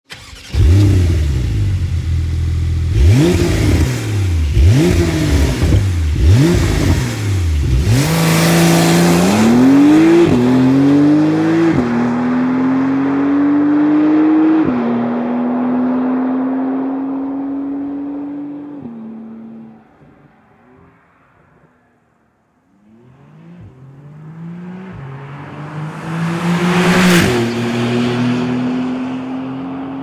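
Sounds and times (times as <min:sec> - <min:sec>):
sports car engine revving: 0:00.2 - 0:19.7.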